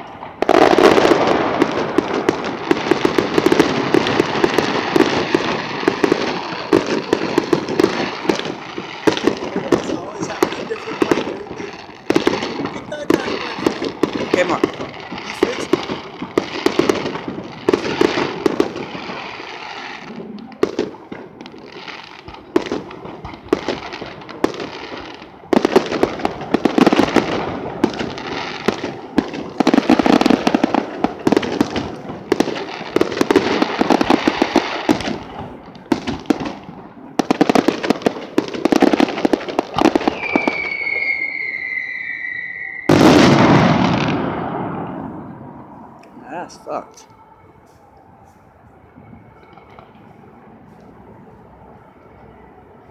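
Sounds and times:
firework whistle: 0.0 - 52.9
fireworks bangs and crackles: 0.0 - 52.9
loud firework boom: 42.9 - 45.8.

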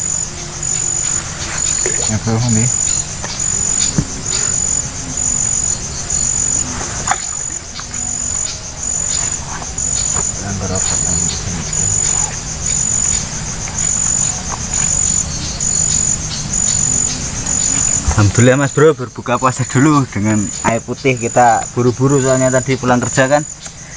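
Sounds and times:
insects chirping: 0.0 - 23.9.

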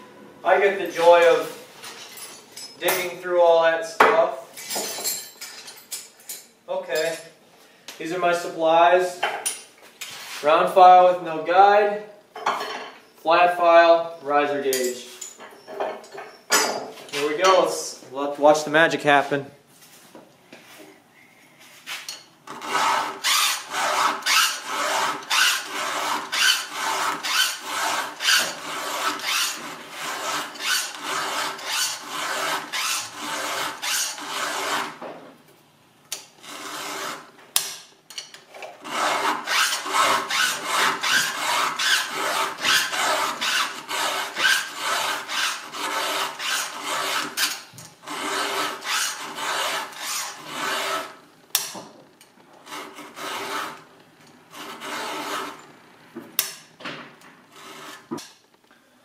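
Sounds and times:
file rasping on saw chain: 22.5 - 35.0, 36.4 - 37.3, 38.8 - 51.2, 52.7 - 53.8, 54.6 - 55.6.

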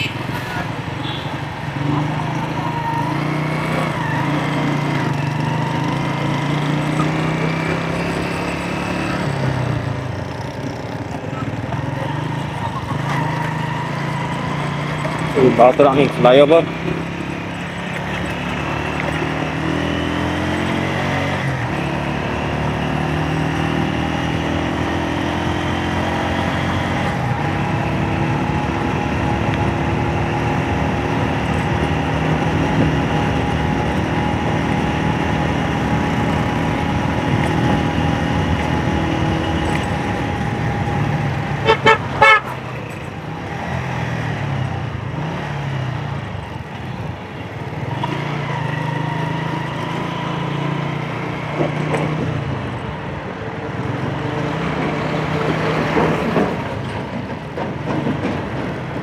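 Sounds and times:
horn beeping: 41.6 - 43.0.

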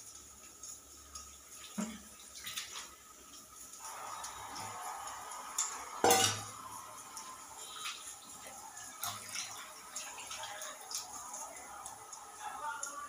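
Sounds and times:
metallic clank of pots: 5.6 - 6.5.

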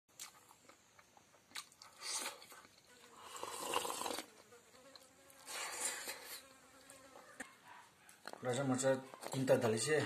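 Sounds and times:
flying insect buzzing: 2.8 - 7.4.

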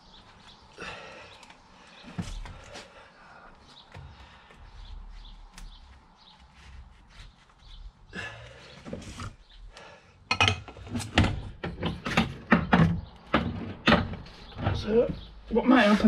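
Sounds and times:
metal parts knocking and clunking: 10.3 - 15.3.

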